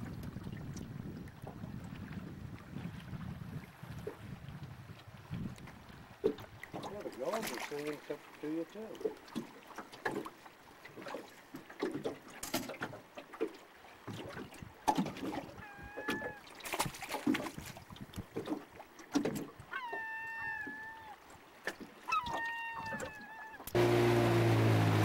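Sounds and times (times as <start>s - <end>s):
loon calling: 15.6s - 16.4s, 19.7s - 21.2s, 22.1s - 23.8s.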